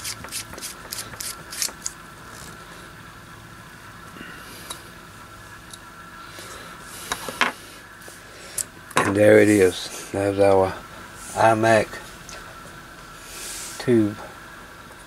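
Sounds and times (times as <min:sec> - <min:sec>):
metal threads clicking and scraping: 0:00.0 - 0:02.5
low steady hum: 0:00.0 - 0:15.0.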